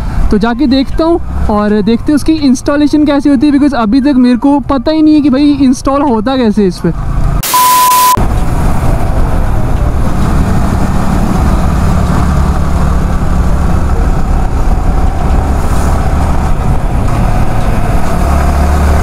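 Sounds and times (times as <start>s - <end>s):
wind noise on microphone: 8.1s - 19.0s.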